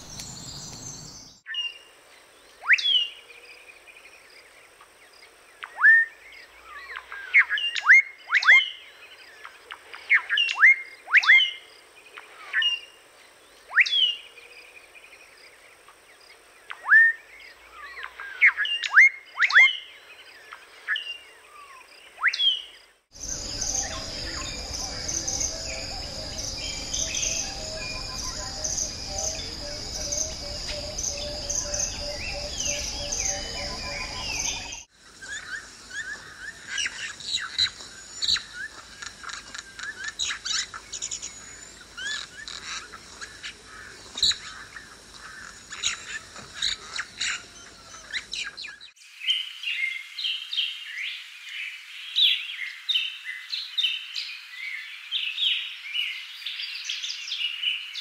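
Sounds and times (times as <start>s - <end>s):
insects buzzing: 0.0s - 1.4s, 22.7s - 49.4s
other birds calling: 20.5s - 49.0s.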